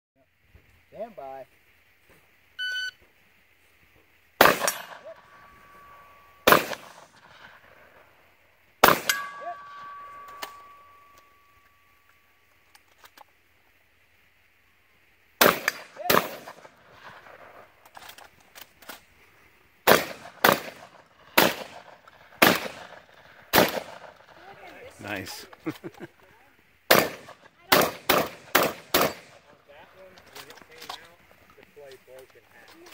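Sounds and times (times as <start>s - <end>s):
steel targets ringing: 4.4s - 6.8s, 8.8s - 12.0s
shotgun shots: 4.4s - 7.5s, 8.8s - 10.7s, 15.4s - 17.7s, 19.8s - 24.4s, 26.9s - 29.6s.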